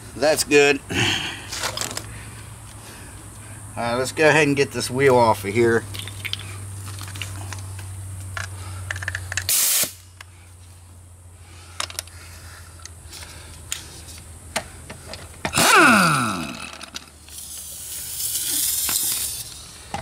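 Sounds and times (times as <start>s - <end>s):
air hose coupler snapping: 8.4s - 10.3s, 14.5s - 17.6s
loud hiss of escaping air: 9.5s - 10.1s, 17.3s - 19.7s
impact wrench running: 15.4s - 19.6s.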